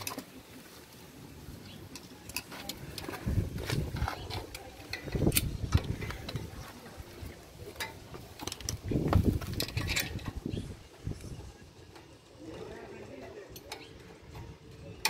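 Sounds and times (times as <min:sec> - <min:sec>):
tools clicking on metal: 0:04.0 - 0:06.5.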